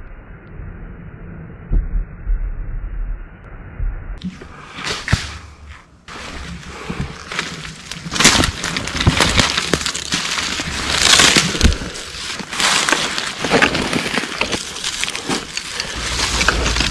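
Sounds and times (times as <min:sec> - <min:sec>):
footsteps crunching through dry leaves: 0:06.1 - 0:16.9.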